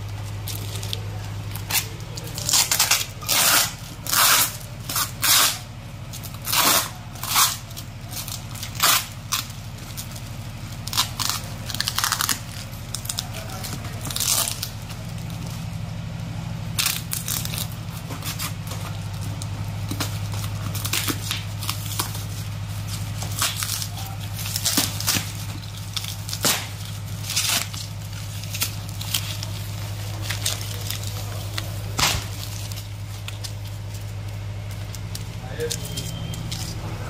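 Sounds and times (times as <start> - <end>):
steady low hum: 0.0 - 37.0
styrofoam crunching: 0.0 - 37.0
paper wrapping tearing: 0.3 - 15.5, 16.7 - 37.0.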